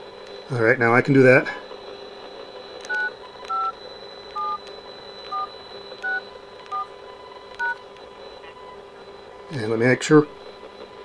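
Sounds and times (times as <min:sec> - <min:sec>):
phone keypad touch-tones: 0:02.8 - 0:06.9, 0:07.6 - 0:07.8.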